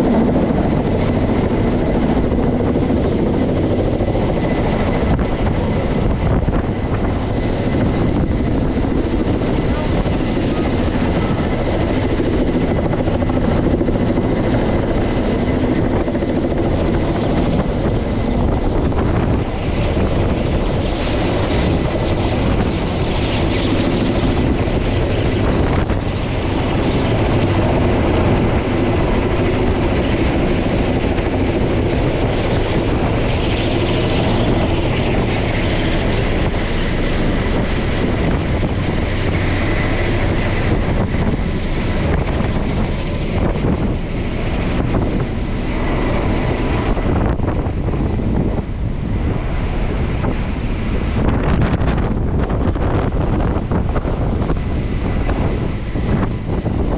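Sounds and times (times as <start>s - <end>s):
helicopter rotors and engines: 0.0s - 56.9s.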